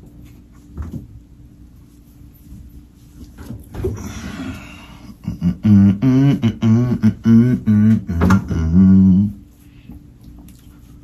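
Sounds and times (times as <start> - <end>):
man humming a tune: 4.4 - 9.6.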